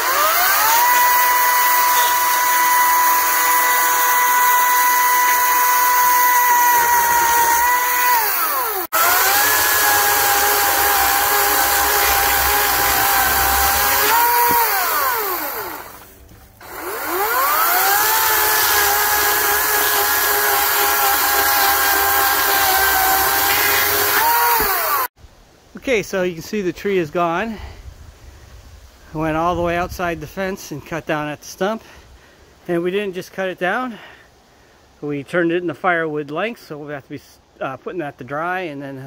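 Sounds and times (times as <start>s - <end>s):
chainsaw cutting log: 0.0s - 25.1s
electric chainsaw whine: 0.0s - 25.1s.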